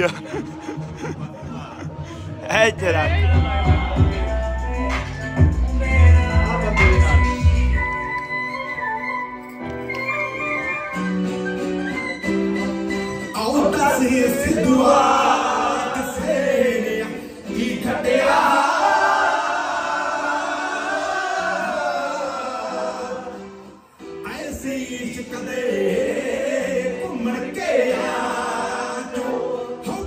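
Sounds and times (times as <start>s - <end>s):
men singing in chorus: 13.8s - 23.5s, 24.4s - 30.0s.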